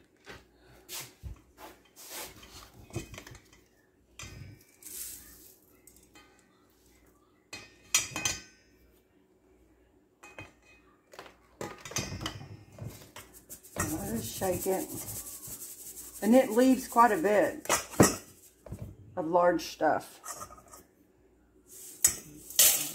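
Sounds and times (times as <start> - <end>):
metal bowls clinking and knocking: 7.6 - 8.8, 10.2 - 15.3, 16.5 - 18.4.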